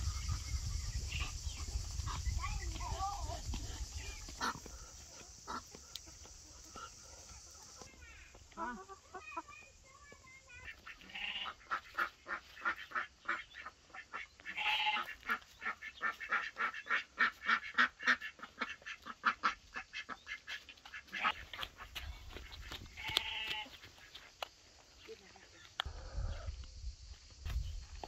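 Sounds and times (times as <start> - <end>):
poultry calling: 3.8 - 9.6, 10.6 - 24.3.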